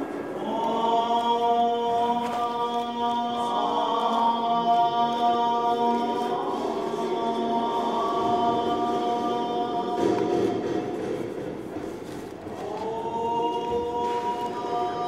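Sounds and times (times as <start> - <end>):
chanted drone singing: 0.0 - 11.0, 12.5 - 15.0.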